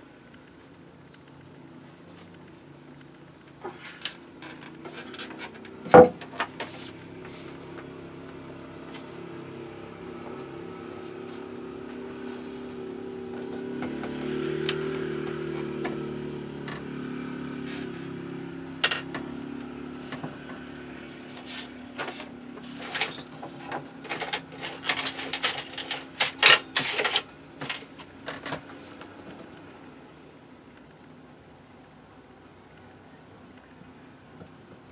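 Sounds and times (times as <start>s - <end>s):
vehicle engine droning: 0.0s - 26.4s.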